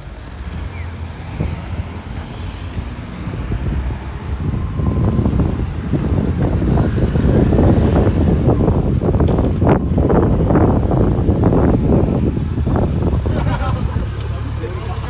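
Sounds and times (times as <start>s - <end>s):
wind buffeting microphone: 0.0s - 14.5s
city traffic rumble: 0.0s - 15.0s.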